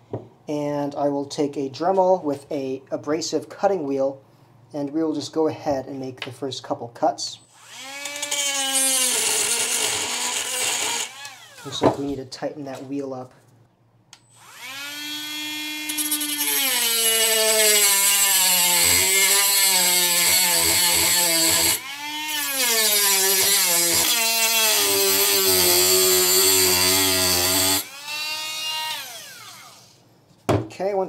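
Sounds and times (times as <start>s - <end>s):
rotary tool motor whining: 14.3s - 18.3s.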